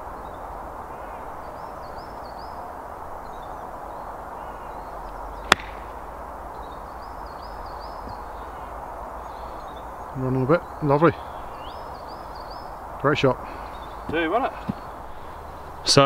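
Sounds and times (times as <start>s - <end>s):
golf club striking ball: 5.4s - 6.0s.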